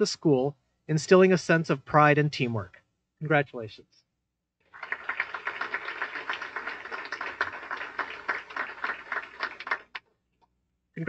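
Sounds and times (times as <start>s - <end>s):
audience applauding: 4.7s - 10.0s.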